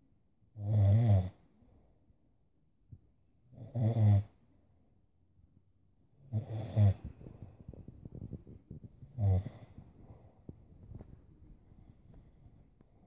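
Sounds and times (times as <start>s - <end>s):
man snoring: 0.6s - 1.4s, 3.6s - 4.3s, 6.2s - 7.1s, 9.1s - 9.8s.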